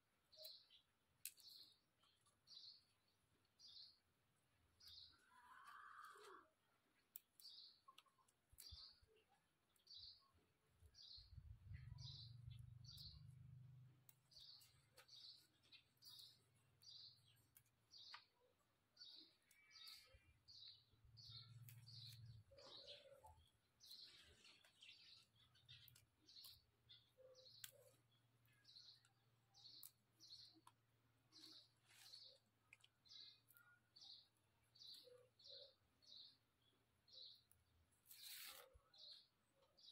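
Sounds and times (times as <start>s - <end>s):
faint bird chirping: 0.2s - 39.9s
vegetable stems snapping: 27.6s - 28.0s.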